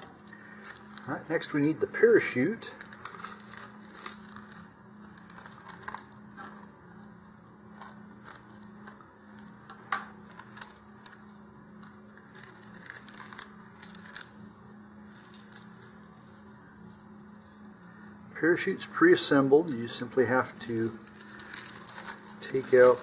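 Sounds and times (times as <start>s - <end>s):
plastic crinkling and rustling: 0.0s - 1.7s, 2.5s - 6.7s, 7.7s - 16.6s, 19.7s - 23.0s
faint steady hum: 0.0s - 23.0s.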